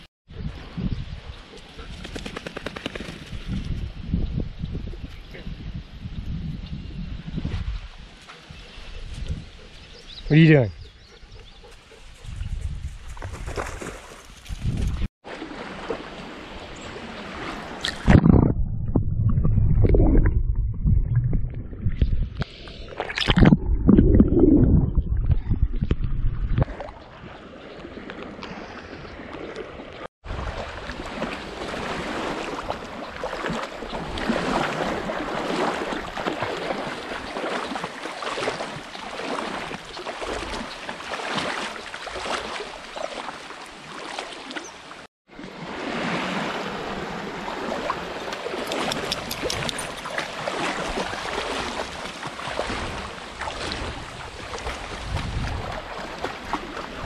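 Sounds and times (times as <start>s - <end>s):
water splashing against camera: 17.4s - 27.0s, 48.0s - 57.0s.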